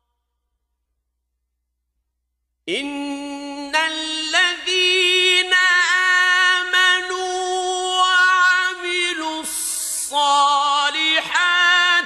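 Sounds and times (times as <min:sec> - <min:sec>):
man reciting melodically: 0:02.6 - 0:12.0.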